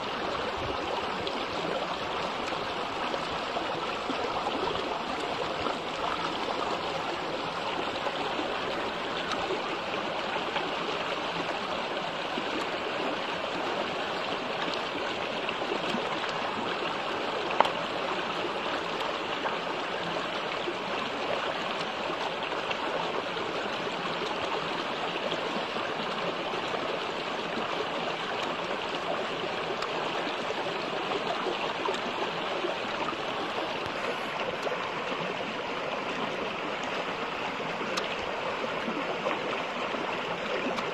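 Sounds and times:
stream babbling over rocks: 0:00.0 - 0:40.9.

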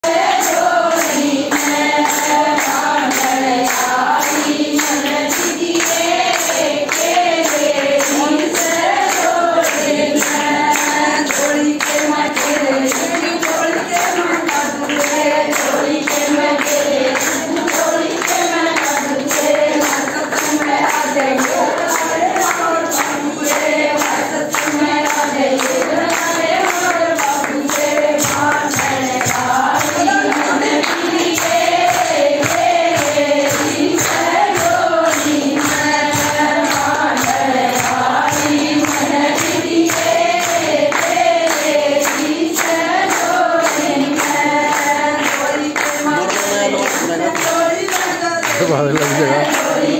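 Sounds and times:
rhythmic hand-clapping: 0:00.0 - 0:49.9
women singing devotional song: 0:00.0 - 0:49.9.

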